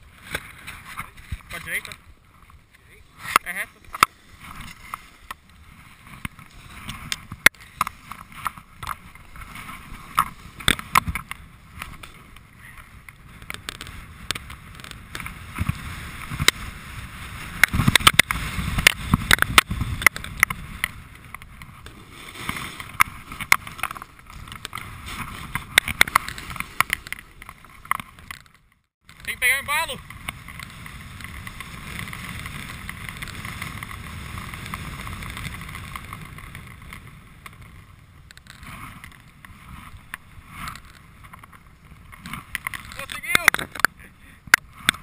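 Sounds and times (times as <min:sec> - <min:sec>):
snowboard scraping on snow: 0:00.0 - 0:28.2, 0:29.5 - 0:43.5
wind on microphone: 0:00.0 - 0:28.4.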